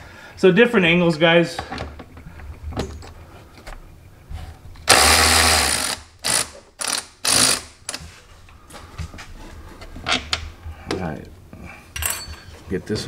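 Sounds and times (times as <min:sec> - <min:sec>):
electric ratchet running: 0:04.8 - 0:07.8.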